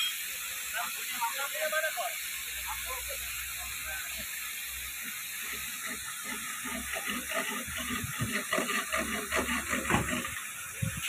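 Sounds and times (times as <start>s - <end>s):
fountain water jet spraying: 0.0s - 11.0s.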